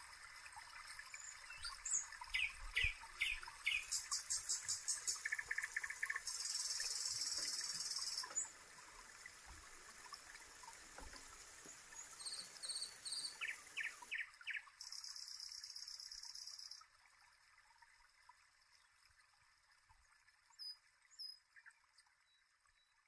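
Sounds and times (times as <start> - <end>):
birds chirping: 1.3 - 8.5.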